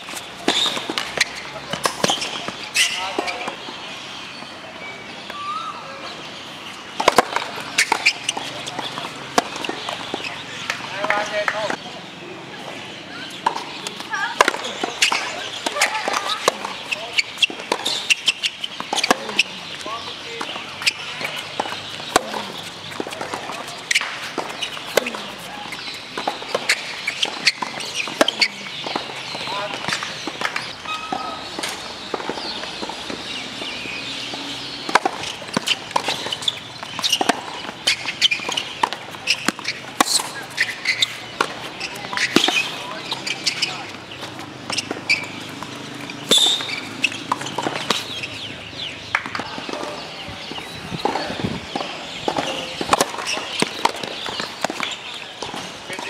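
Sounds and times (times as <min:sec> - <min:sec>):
tennis ball bouncing: 0:00.0 - 0:03.6, 0:06.9 - 0:11.8, 0:13.2 - 0:56.0
sneaker squeaks: 0:00.0 - 0:11.8, 0:12.6 - 0:56.0
racket hitting tennis ball: 0:06.9 - 0:11.7, 0:13.4 - 0:19.8, 0:20.4 - 0:50.0, 0:50.6 - 0:56.0
footsteps on court: 0:13.4 - 0:56.0
ball bouncing: 0:20.4 - 0:33.3.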